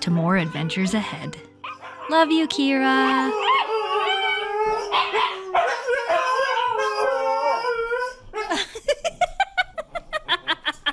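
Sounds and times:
dogs howling: 0.2s - 8.6s
dogs yipping: 0.3s - 8.6s.

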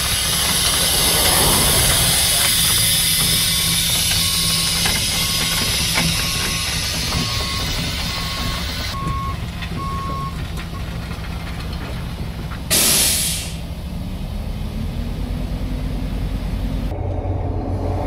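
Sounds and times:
diesel truck engine running: 0.0s - 18.0s
backup alarm beeping: 3.6s - 10.4s
air brake hiss: 12.7s - 13.6s.

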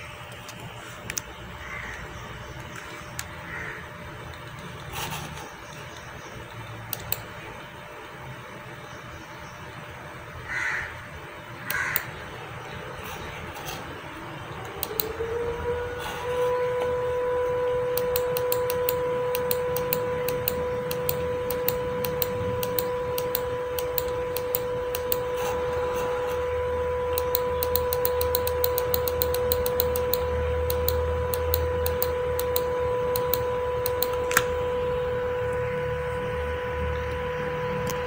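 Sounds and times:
stepper motor whine: 0.0s - 38.0s
sharp ticks: 27.2s - 34.2s.

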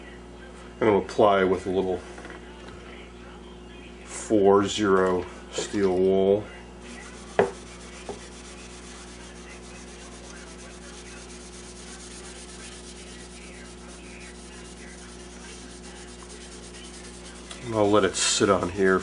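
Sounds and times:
steel wool scrubbing wood: 6.9s - 19.0s.

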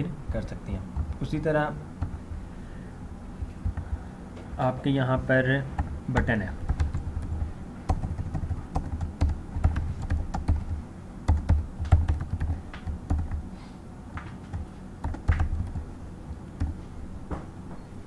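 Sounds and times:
computer keyboard typing: 3.4s - 4.0s, 5.8s - 13.4s, 14.4s - 15.9s, 16.6s - 16.8s.

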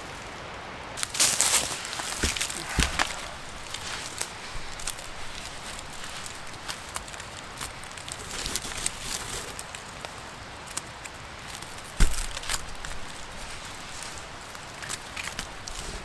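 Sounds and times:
rustling of cord and leaves: 1.0s - 16.0s
thump: 12.0s - 12.2s.

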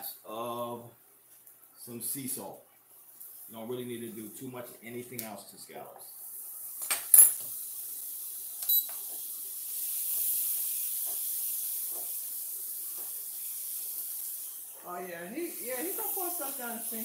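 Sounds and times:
scallops sizzling in a skillet: 6.3s - 17.0s.

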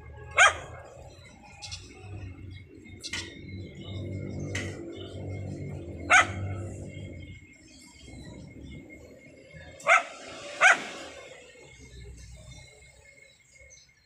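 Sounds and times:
low rumbling noise: 0.0s - 13.0s
dog barking: 0.2s - 1.1s, 5.8s - 7.0s, 9.8s - 11.2s.

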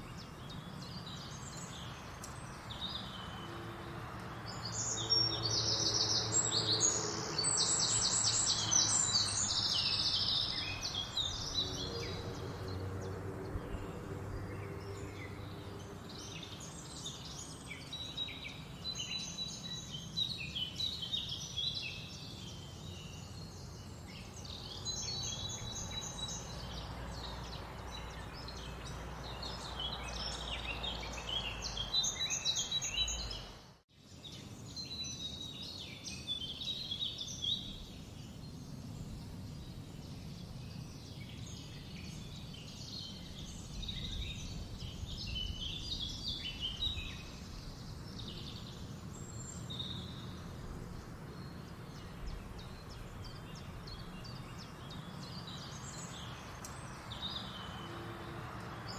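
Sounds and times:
small birds chirping and trilling: 0.0s - 58.9s.

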